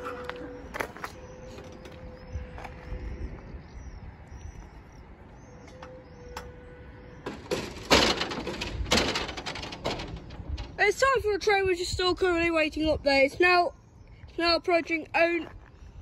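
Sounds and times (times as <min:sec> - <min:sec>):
low outdoor rumble: 0:00.0 - 0:16.0
small birds chirping: 0:00.5 - 0:07.3, 0:11.9 - 0:15.9.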